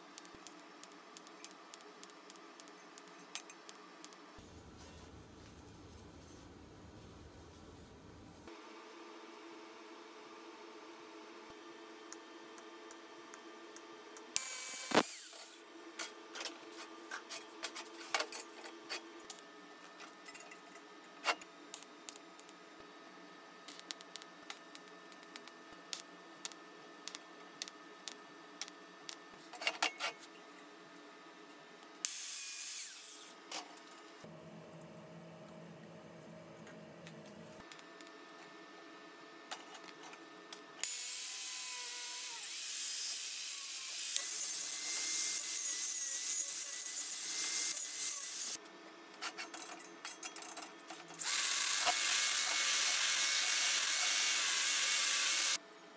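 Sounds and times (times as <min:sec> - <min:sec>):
welding arc buzz: 0:14.4 - 0:15.7, 0:32.0 - 0:33.4, 0:40.8 - 0:48.6, 0:51.2 - 0:55.6.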